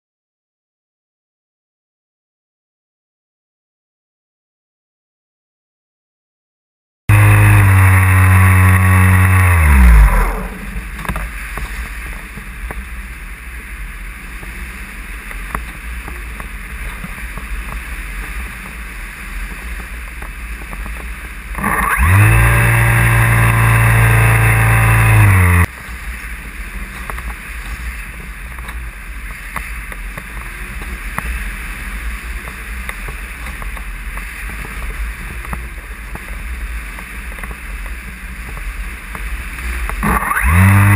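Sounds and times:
electric motor and propeller whirring: 0:07.1 - 0:11.9, 0:20.6 - 0:25.7, 0:39.4 - 0:40.9.

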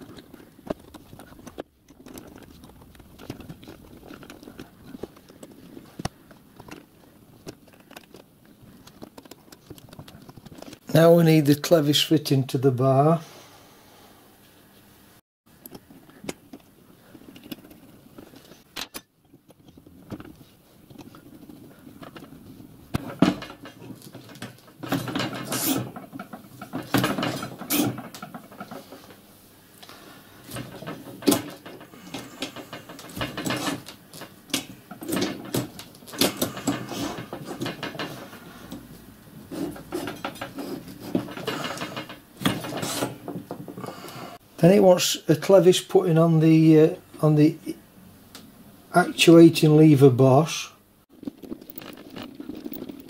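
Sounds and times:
metal parts clicking and scraping: 0:00.0 - 0:10.8, 0:15.6 - 0:29.2, 0:29.8 - 0:44.0, 0:51.1 - 0:53.0.

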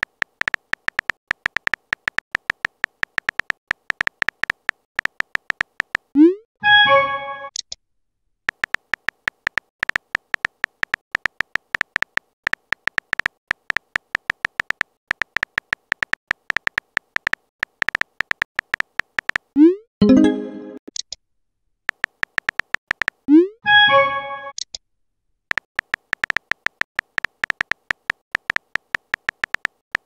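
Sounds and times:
smartphone keyboard typing clicks: 0:00.0 - 0:06.1, 0:08.5 - 0:19.6, 0:21.9 - 0:23.3, 0:25.5 - 0:30.0
message sent chime: 0:06.6 - 0:07.5, 0:20.0 - 0:20.8, 0:23.7 - 0:24.5.

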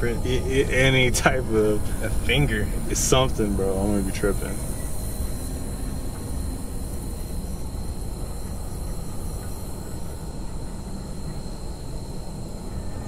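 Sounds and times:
car coasting rumble: 0:00.0 - 0:09.0.

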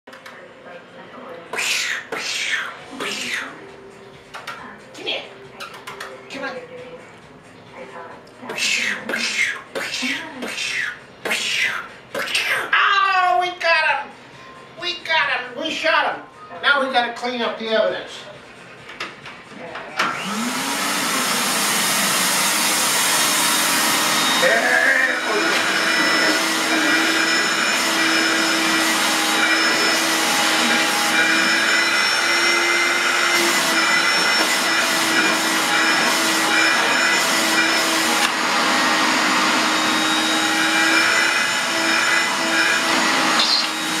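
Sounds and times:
vacuum cleaner running: 0:20.0 - 0:44.0.

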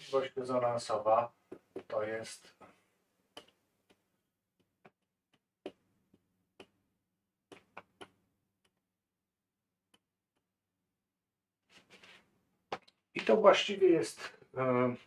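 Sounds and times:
marker pen tapping on whiteboard: 0:01.4 - 0:02.0, 0:03.3 - 0:08.8.

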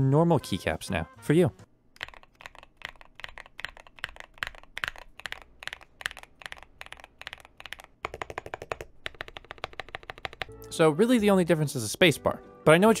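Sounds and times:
mechanical keyboard typing: 0:02.0 - 0:10.5.

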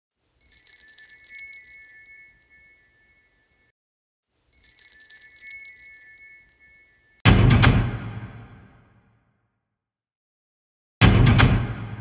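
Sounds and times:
shimmering sparkle chime: 0:00.4 - 0:03.7, 0:04.5 - 0:07.2.

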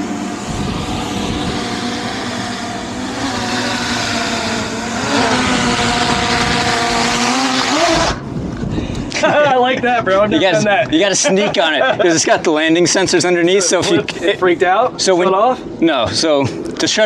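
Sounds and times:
wind noise on microphone: 0:00.0 - 0:11.1
drone propellers buzzing: 0:00.0 - 0:16.7.

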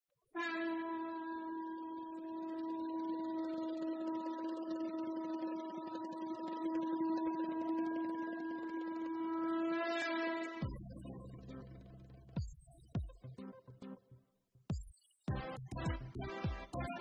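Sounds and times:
long sustained musical note: 0:00.5 - 0:10.6.

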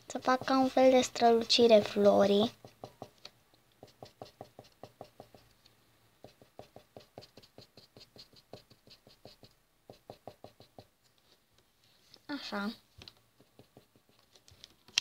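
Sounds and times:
marker tip tapping on paper: 0:02.5 - 0:05.4, 0:06.2 - 0:10.9.

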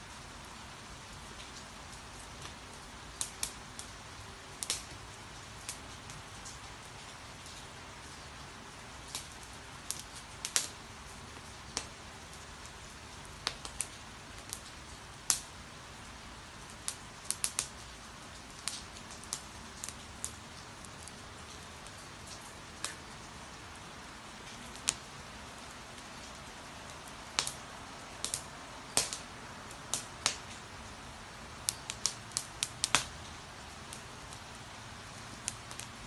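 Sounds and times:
fire crackling and popping: 0:00.0 - 0:36.0
rain hiss: 0:00.0 - 0:36.0.

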